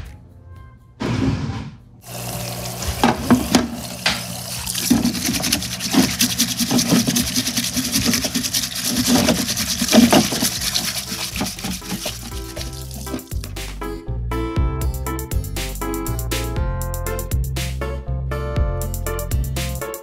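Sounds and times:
solvent pouring and splashing: 2.0s - 13.7s.

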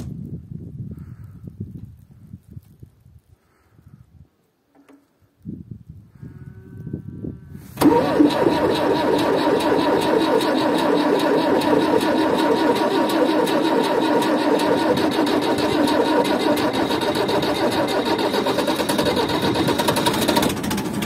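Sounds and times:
diesel tractor engine clattering: 7.8s - 21.0s.

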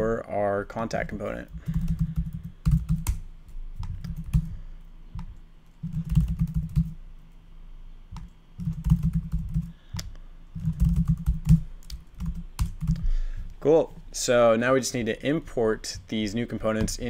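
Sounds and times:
typing on a computer keyboard: 1.6s - 3.2s, 3.8s - 4.5s, 5.2s - 7.0s, 8.2s - 9.7s, 10.6s - 13.0s.

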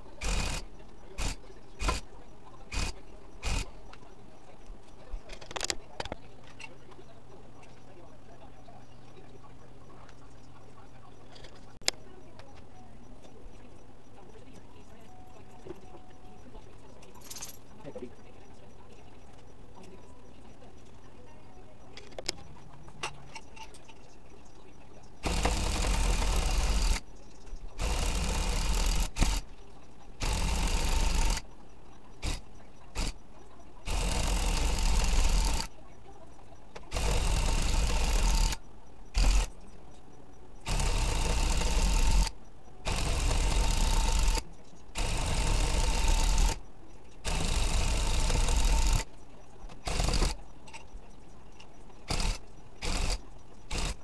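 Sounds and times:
electric tufting gun rattling: 0.0s - 2.1s, 2.7s - 3.8s, 25.2s - 27.0s, 27.8s - 29.4s, 30.2s - 31.4s, 32.2s - 33.2s, 33.8s - 35.7s, 36.9s - 39.5s, 40.6s - 44.4s, 45.0s - 46.6s, 47.2s - 49.1s, 49.8s - 50.4s, 52.1s - 54.0s.

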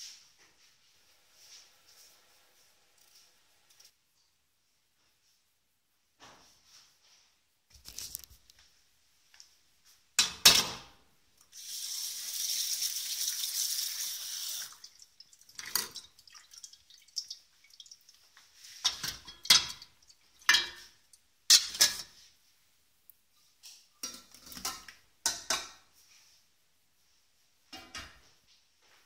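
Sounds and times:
tap water running into pan: 11.5s - 20.7s
metal pan clanking: 18.8s - 22.1s, 24.0s - 25.8s.

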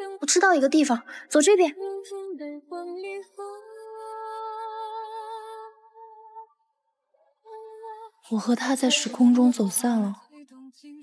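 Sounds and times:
woman singing with vibrato: 0.0s - 0.3s, 7.5s - 11.0s.

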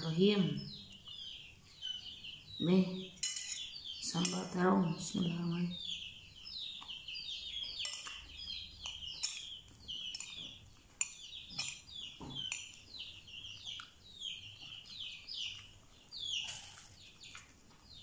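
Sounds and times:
bird chirping: 0.0s - 18.0s
metal spoon clinking on plate: 3.2s - 4.4s, 7.8s - 8.2s, 11.0s - 12.8s.

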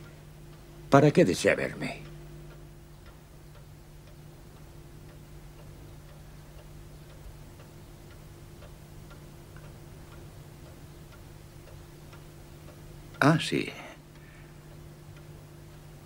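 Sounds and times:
clock ticking: 0.0s - 16.0s
low hum: 0.0s - 16.0s.

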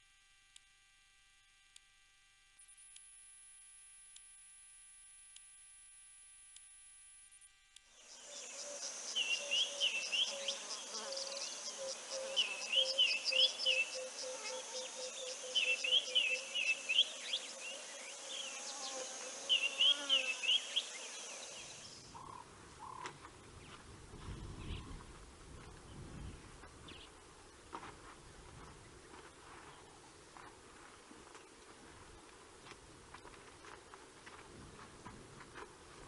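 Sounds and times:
faint electronic hum: 0.0s - 36.0s
high insect trill: 7.9s - 23.0s
low wind-like rumble: 22.2s - 27.6s.

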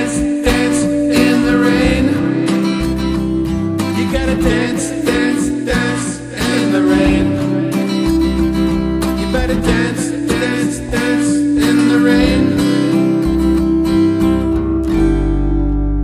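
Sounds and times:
bass line: 0.0s - 16.0s
long held tone: 0.0s - 16.0s
strummed acoustic guitar: 0.0s - 16.0s.

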